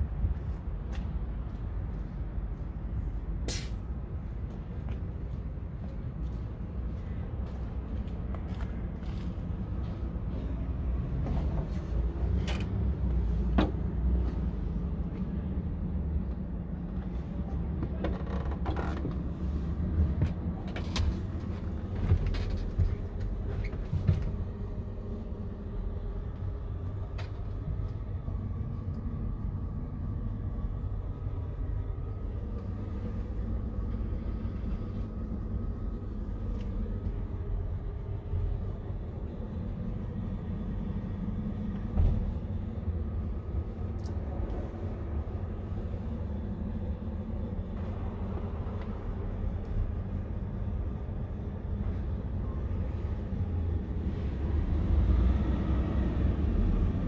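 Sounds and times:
cab trim clicks and creaks: 12.4 - 12.8.

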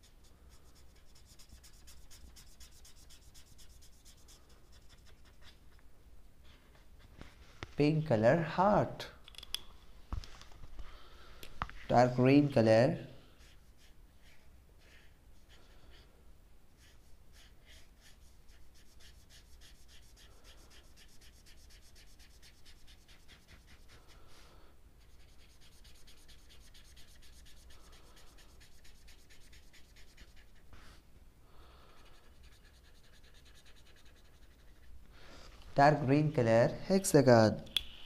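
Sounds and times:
felt-tip marker scratching on paper: 0.0 - 5.8, 13.3 - 16.1, 16.8 - 24.4, 25.0 - 31.0, 31.9 - 34.9.

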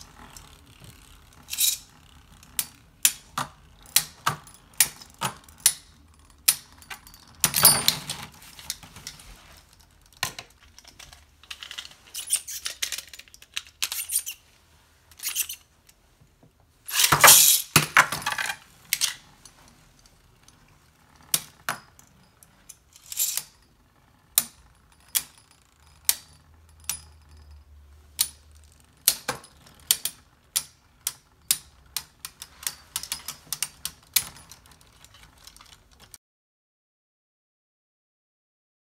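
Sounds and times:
spinning tops clashing: 16.9 - 18.4.

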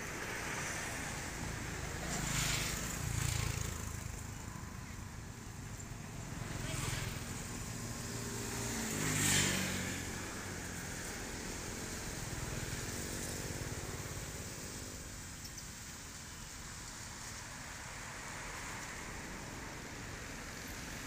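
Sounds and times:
vehicle engine passing: 6.2 - 15.1.

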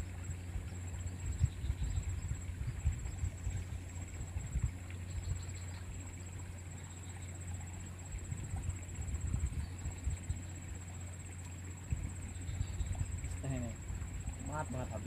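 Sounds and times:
wind on microphone: 0.0 - 5.6, 8.1 - 10.5, 11.8 - 15.0.

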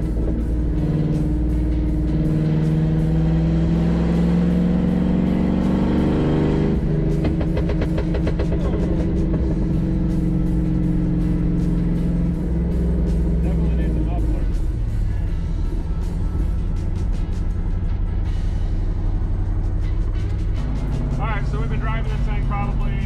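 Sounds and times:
exhaust crackling and popping: 0.0 - 2.0, 6.7 - 14.9
car engine accelerating: 0.0 - 23.0.

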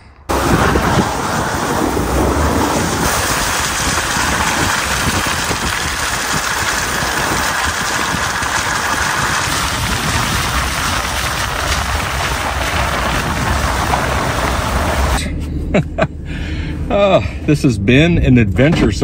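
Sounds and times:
low engine hum: 0.1 - 19.0
tyres rolling over slush and gravel: 0.3 - 15.2.

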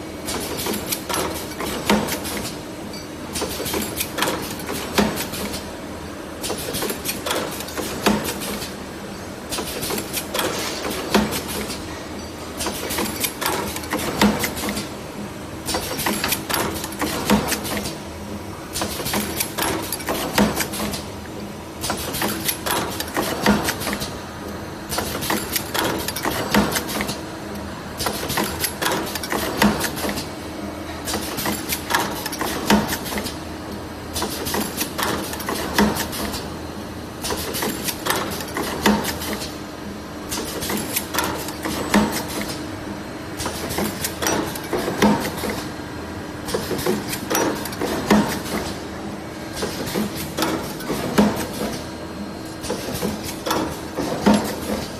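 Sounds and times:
constant machine hum: 0.0 - 54.9
machine clattering clicks: 0.2 - 5.7, 6.4 - 8.8, 9.5 - 11.9, 12.6 - 14.9, 15.6 - 18.0, 18.7 - 21.1, 21.8 - 24.2, 24.9 - 27.2, 28.0 - 30.3, 30.9 - 33.4, 34.1 - 36.5, 37.2 - 39.6, 40.3 - 42.7, 43.4 - 45.7, 46.4 - 48.8, 49.5 - 51.9, 52.6 - 54.9.

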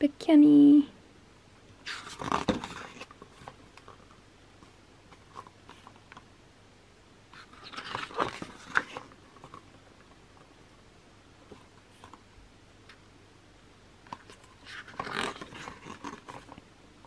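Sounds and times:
paper pages rustling: 1.8 - 6.2, 7.3 - 10.1, 14.0 - 16.6.

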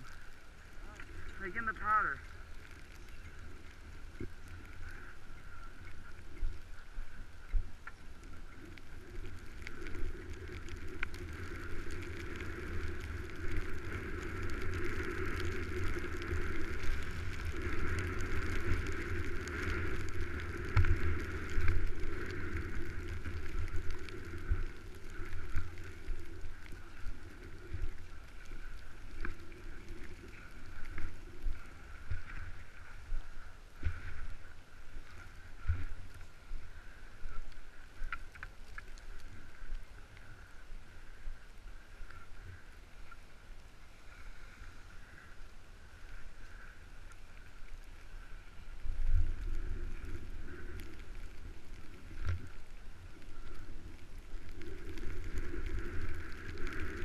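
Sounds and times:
skis scraping over snow: 0.0 - 42.6.

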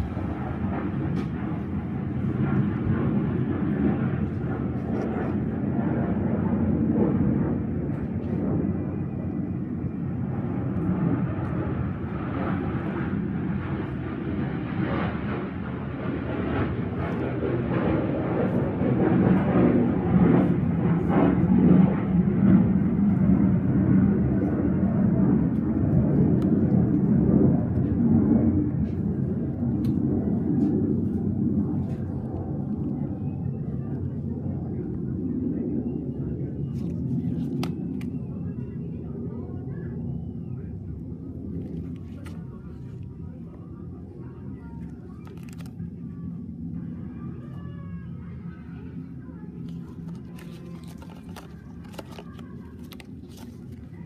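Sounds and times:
steady low rumble: 0.0 - 39.3
plastic blister pack crinkling: 45.2 - 45.7, 49.6 - 54.0.

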